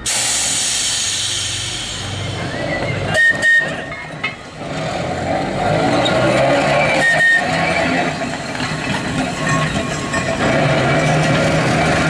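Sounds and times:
compressed air hiss: 0:00.0 - 0:02.5
air whistle toot: 0:00.5 - 0:03.9, 0:06.9 - 0:07.6.

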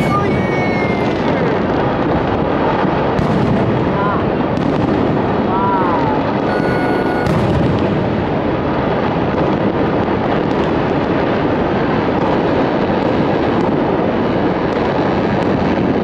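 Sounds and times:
fireworks rumble: 0:00.0 - 0:16.0
faint firework pops: 0:03.2 - 0:04.0.

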